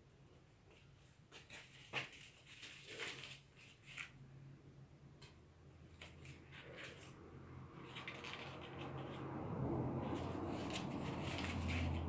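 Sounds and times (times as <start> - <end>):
paper rustling and crinkling: 0.7 - 4.2, 6.0 - 7.2, 7.8 - 9.2, 10.0 - 12.0.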